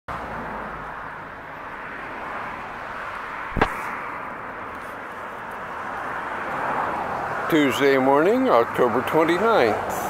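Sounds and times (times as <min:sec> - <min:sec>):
outdoor background noise: 0:00.1 - 0:10.0
sharp knock: 0:03.5 - 0:03.9.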